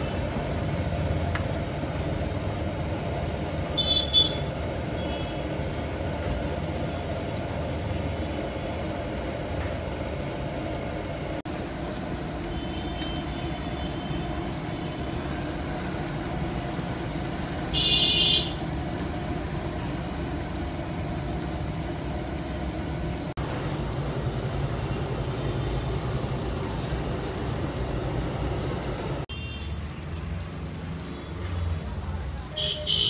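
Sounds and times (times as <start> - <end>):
street traffic rumble: 0.0 - 33.0
high-pitched car horn: 3.8 - 5.5, 12.5 - 14.3, 17.7 - 18.6, 32.6 - 33.0.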